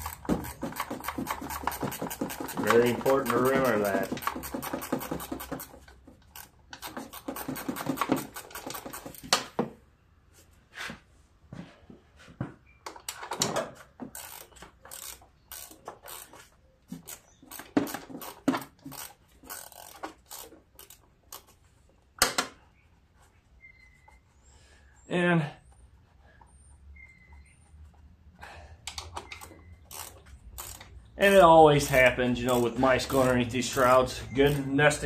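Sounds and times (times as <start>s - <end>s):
ratchet clicking: 0.0s - 9.2s, 14.1s - 21.6s, 28.9s - 31.0s, 31.8s - 33.9s.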